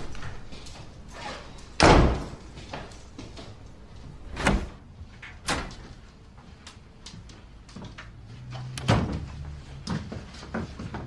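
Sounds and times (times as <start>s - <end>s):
door shutting with thud: 1.8s - 2.4s, 4.2s - 4.8s.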